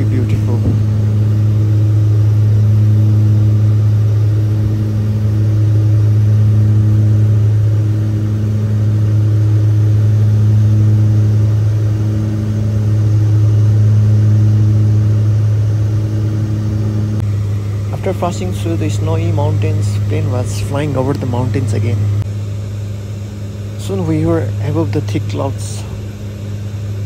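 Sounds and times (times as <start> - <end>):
turboprop engines droning in cabin: 0.0 - 27.0.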